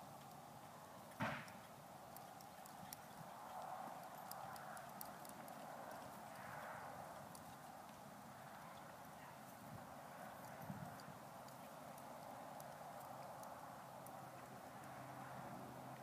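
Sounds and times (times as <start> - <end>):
horse walking on soft dirt: 0.0 - 16.0
light clicks: 1.1 - 8.0, 10.3 - 15.4
sharp thump: 1.2 - 1.6.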